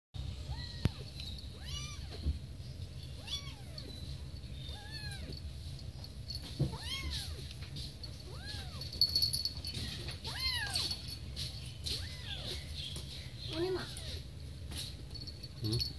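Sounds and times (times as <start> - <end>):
kittens mewing: 0.5 - 2.3, 4.6 - 5.4, 6.6 - 7.5, 8.2 - 9.1, 11.8 - 12.8.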